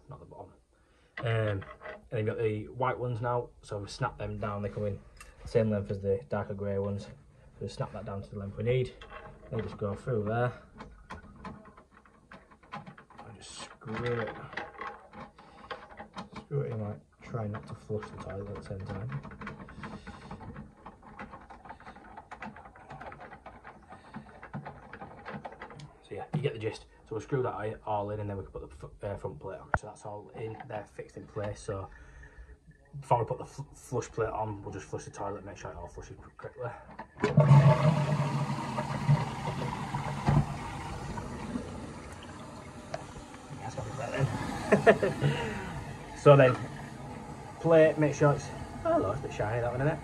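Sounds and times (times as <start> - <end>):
toilet flushing water rush: 37.2 - 50.0.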